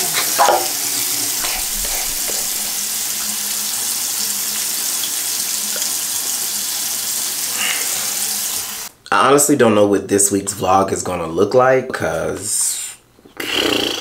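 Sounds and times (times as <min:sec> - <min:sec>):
water running from a sink tap: 0:00.0 - 0:08.9.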